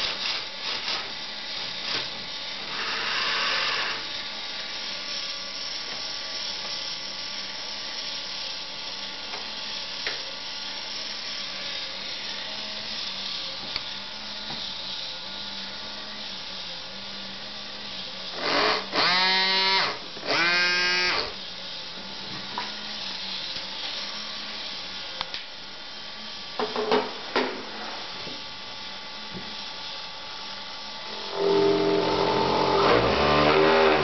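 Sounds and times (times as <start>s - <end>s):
small motor humming: 2.6s - 4.3s, 4.9s - 21.4s, 31.0s - 34.0s
horn blasts: 31.2s - 34.0s.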